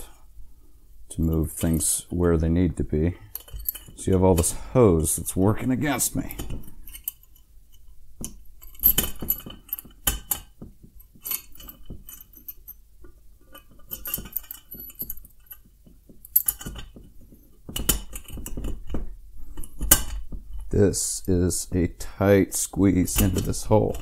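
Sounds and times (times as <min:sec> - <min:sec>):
metal clinks and rattles: 0:03.2 - 0:04.6, 0:06.0 - 0:20.7.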